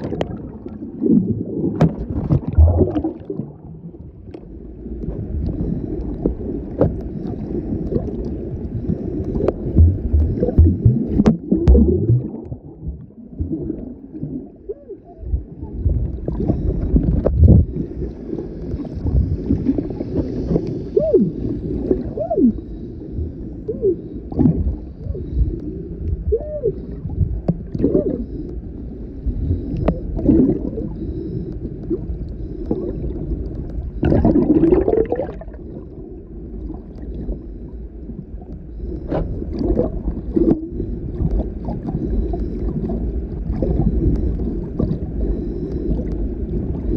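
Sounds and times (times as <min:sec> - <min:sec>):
clicks underwater: 0:00.0 - 0:03.6, 0:09.2 - 0:14.4, 0:31.5 - 0:35.6
bubbling: 0:00.0 - 0:04.5, 0:09.2 - 0:17.9, 0:26.3 - 0:28.2, 0:29.8 - 0:31.0, 0:32.7 - 0:37.3, 0:39.5 - 0:45.1
underwater water rushing: 0:00.0 - 0:46.9.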